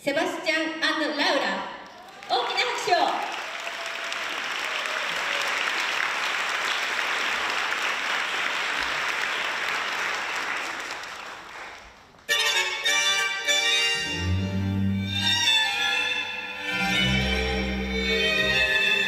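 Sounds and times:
audience applauding: 1.8s - 12.3s
music with violin: 12.3s - 19.0s.

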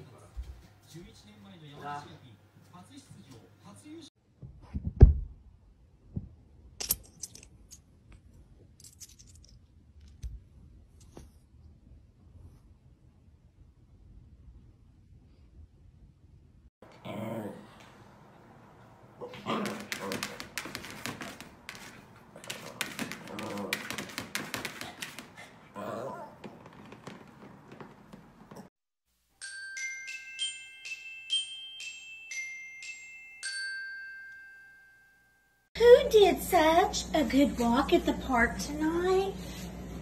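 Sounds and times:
thump: 4.6s - 5.4s
plastic toys clattering: 19.5s - 25.2s.

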